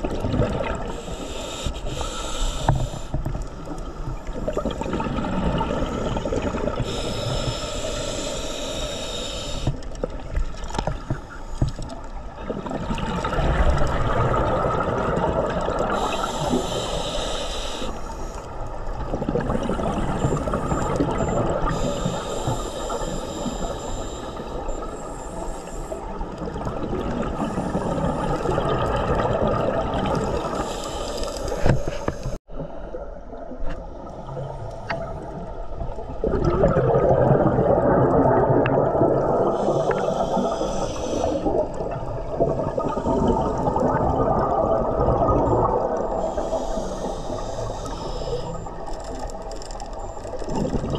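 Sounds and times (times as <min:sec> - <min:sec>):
regulator breathing hissing inhalations: 0:00.8 - 0:04.4, 0:06.0 - 0:09.9, 0:15.8 - 0:18.7, 0:21.6 - 0:26.3, 0:30.2 - 0:32.5, 0:39.4 - 0:41.8, 0:46.0 - 0:48.9
bubbling exhalations: 0:36.1 - 0:46.5.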